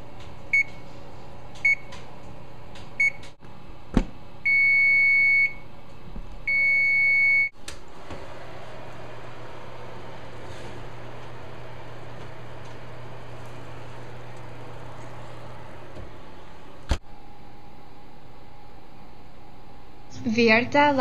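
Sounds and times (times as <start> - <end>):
oven keypad beeps: 0.5 - 0.8, 1.6 - 1.9, 3.0 - 3.2, 4.5 - 5.6, 6.5 - 7.5
oven door opening: 7.6 - 17.0.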